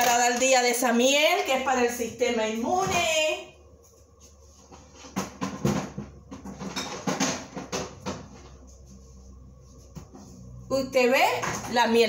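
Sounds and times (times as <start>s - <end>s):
utensils and containers knocking on counter: 4.8s - 8.5s.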